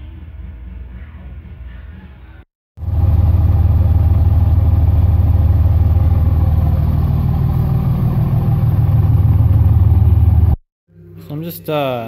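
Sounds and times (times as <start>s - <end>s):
diesel engine idling loudly: 2.8s - 10.6s.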